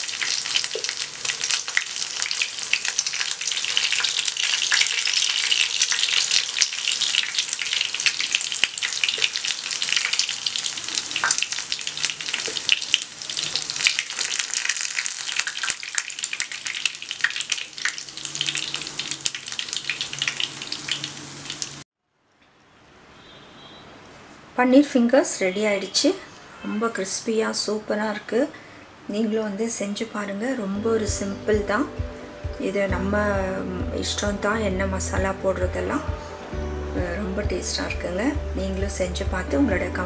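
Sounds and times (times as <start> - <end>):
food sizzling in hot oil: 0.0 - 21.8.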